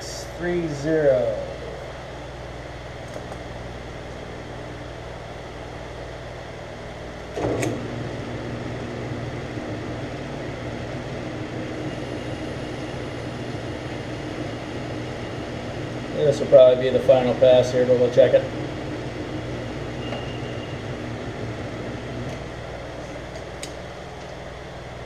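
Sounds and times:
lathe motor humming: 0.0s - 25.0s.

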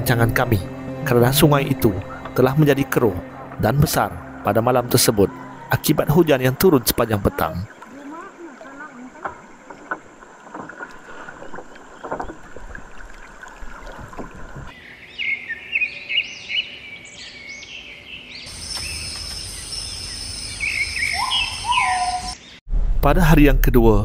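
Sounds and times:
birds chirping and whistling: 14.7s - 22.6s.

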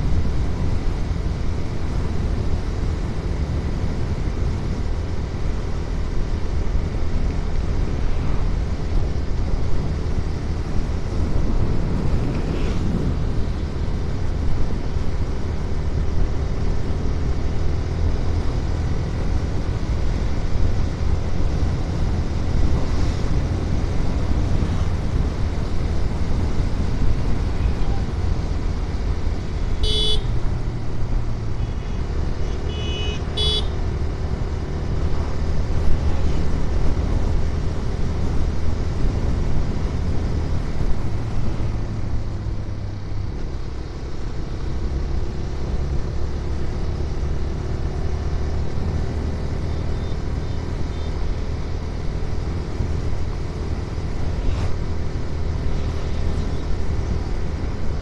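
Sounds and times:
motorcycle engine running: 0.0s - 47.4s
horn tooting: 29.8s - 30.4s, 31.5s - 33.8s.

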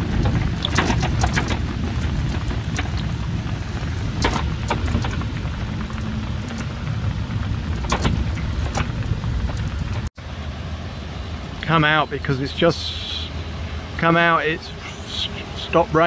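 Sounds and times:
raindrops ticking: 0.0s - 10.1s
rain falling on a boat: 0.0s - 13.0s
steady low rumble: 0.0s - 16.0s.

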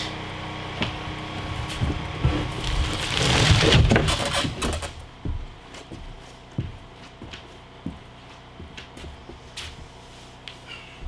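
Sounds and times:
boards scraping and knocking: 1.6s - 5.1s.

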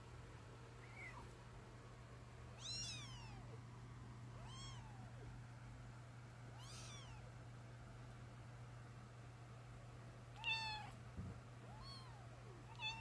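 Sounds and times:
kittens mewing: 2.6s - 3.6s, 4.4s - 5.3s, 6.5s - 7.3s, 10.4s - 11.0s, 11.7s - 13.0s.

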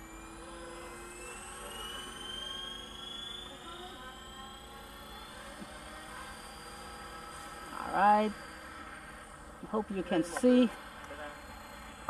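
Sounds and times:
rc plane motor whining overhead: 0.0s - 12.0s.

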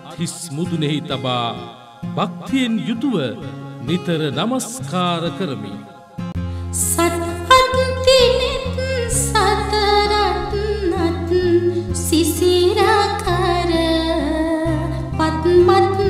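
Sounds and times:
backing music with low bass: 2.1s - 16.0s
person singing slowly: 6.8s - 16.0s.

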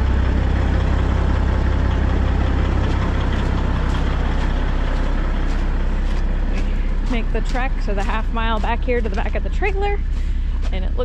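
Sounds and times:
diesel truck engine idling: 0.0s - 11.0s
footsteps crunching on gravel: 2.3s - 11.0s.

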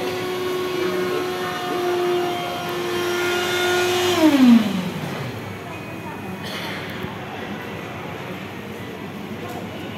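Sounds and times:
cotton candy machine spinning whine: 0.0s - 6.0s.

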